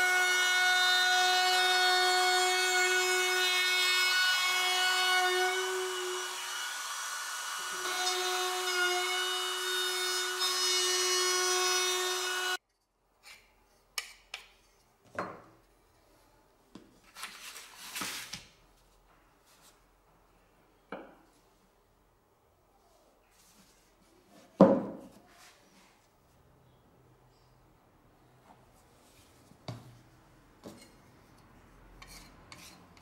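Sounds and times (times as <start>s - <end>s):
trim router whining: 4.3s - 12.6s.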